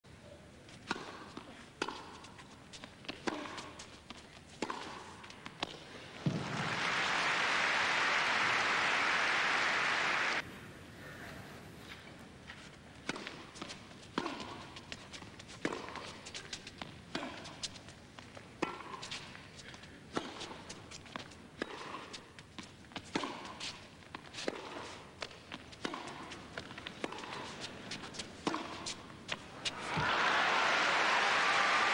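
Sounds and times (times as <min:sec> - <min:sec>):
tennis racket hitting ball: 0:00.8 - 0:06.6, 0:13.0 - 0:17.8, 0:18.6 - 0:19.2, 0:20.1 - 0:30.1
tennis ball bouncing: 0:00.8 - 0:06.7, 0:12.9 - 0:19.3, 0:20.1 - 0:30.1
footsteps on court: 0:01.0 - 0:06.9
ball bouncing: 0:04.6 - 0:06.7
crowd applause: 0:06.3 - 0:10.4, 0:29.7 - 0:31.9.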